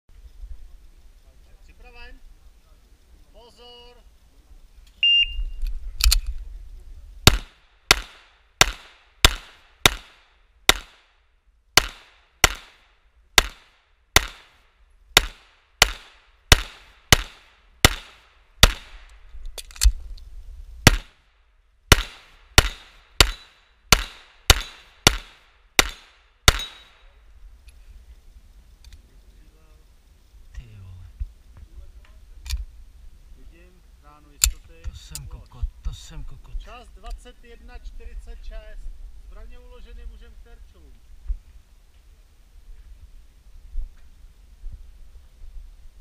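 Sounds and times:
shot timer beep: 5.0s - 5.4s
pistol shots: 7.3s - 11.1s, 11.8s - 14.6s, 15.2s - 19.0s, 20.8s - 21.2s, 21.9s - 27.0s.

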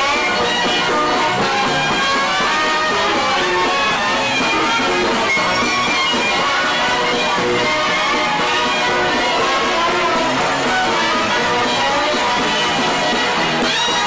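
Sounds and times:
fiddles: 0.0s - 14.0s.

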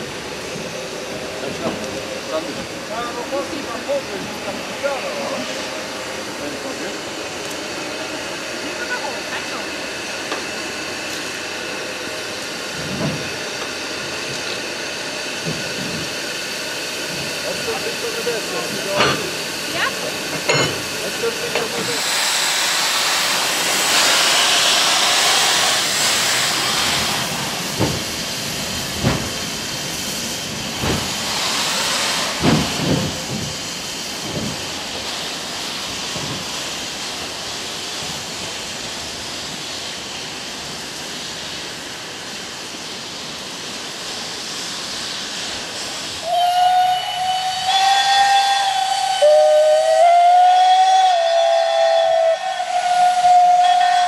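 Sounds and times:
steam hissing: 0.0s - 54.0s
steam locomotive exhaust chuffs: 0.0s - 54.0s
steam whistle blowing: 46.2s - 54.0s.

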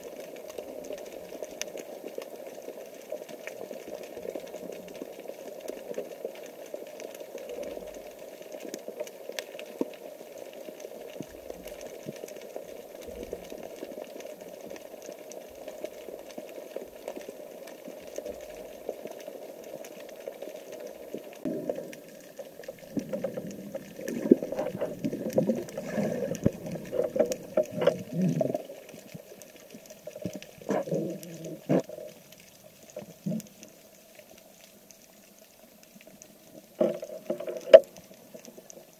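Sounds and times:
underwater rushing: 0.0s - 38.9s
water bubbling and gurgling: 0.0s - 38.9s.

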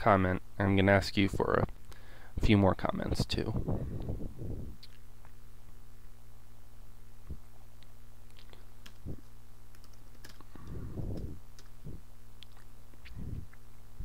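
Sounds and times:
steady low hum: 0.0s - 14.0s
keyboard keys clicking: 8.8s - 11.8s.

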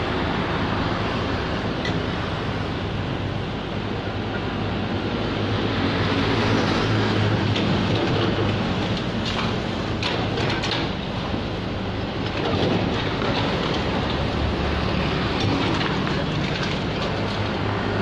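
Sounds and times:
excavator diesel engine running: 0.0s - 18.0s
masonry clattering and knocking: 7.5s - 11.5s, 12.1s - 18.0s.

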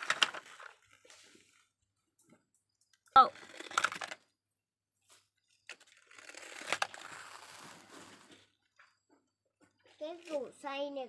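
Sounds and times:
plastic toy vehicles scraping: 0.0s - 1.9s, 3.1s - 4.4s, 5.1s - 8.7s.

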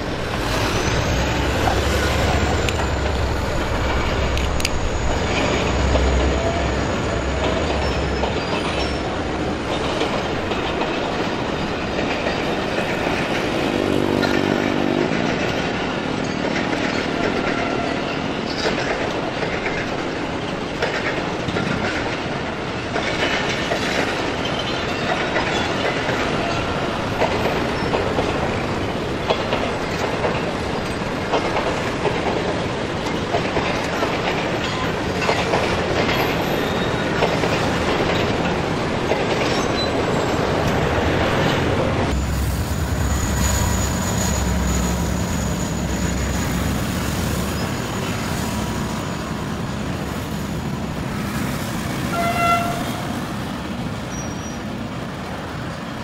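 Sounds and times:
train wheels rumbling on rails: 0.0s - 56.0s
wheels clacking over rail joints: 0.0s - 56.0s
train horn: 52.1s - 53.2s.

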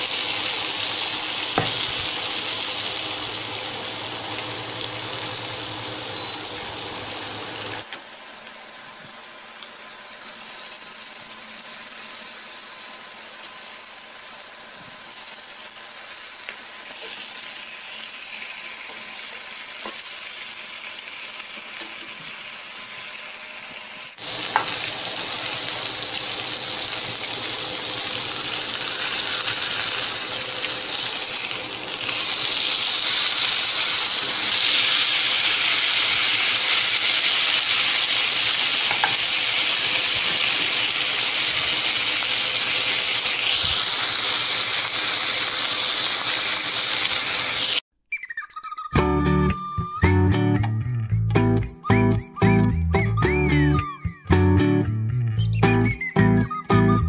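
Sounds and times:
meat sizzling in a frying pan: 0.0s - 47.8s.

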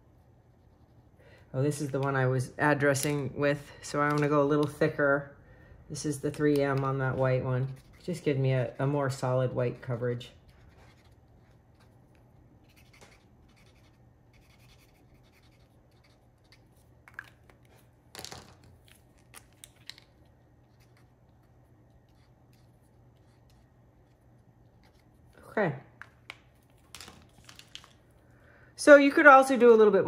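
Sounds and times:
marker scrapes and taps: 10.5s - 16.7s
markers scratching on cardstock: 12.6s - 16.7s.

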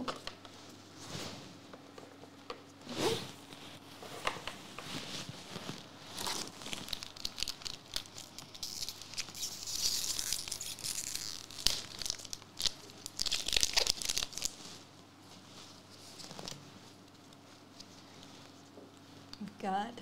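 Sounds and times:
wrapper tearing and crinkling: 6.1s - 14.6s.

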